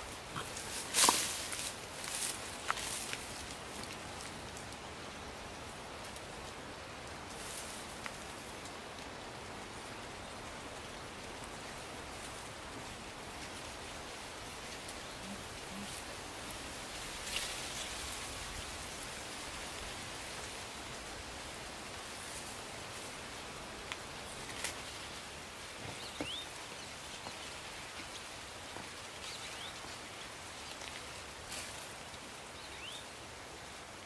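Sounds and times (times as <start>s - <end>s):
steady outdoor hiss: 0.0s - 34.0s
dry grass pulled and scraped: 0.4s - 4.4s.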